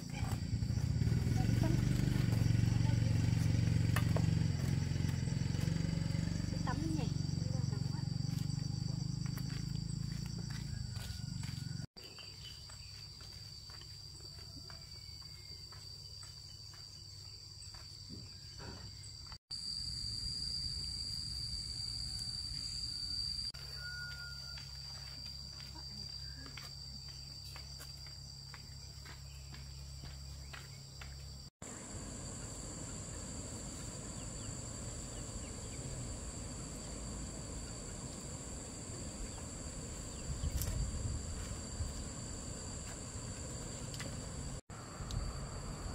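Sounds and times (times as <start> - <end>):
insects chorus: 0.0 - 45.9
outdoor background noise: 0.0 - 45.9.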